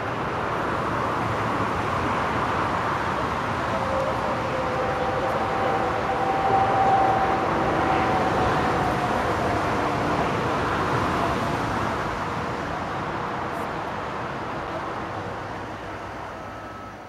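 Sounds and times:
aircraft tow tug noise: 0.0s - 17.0s
faint steady whine: 2.6s - 12.2s.

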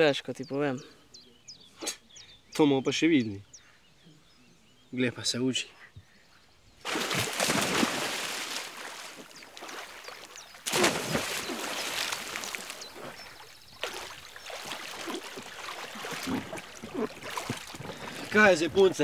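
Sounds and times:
river water splashing: 6.8s - 19.0s.

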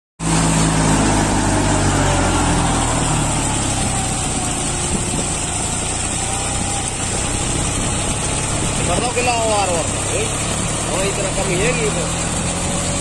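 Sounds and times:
tractor diesel engine running: 0.2s - 13.0s.

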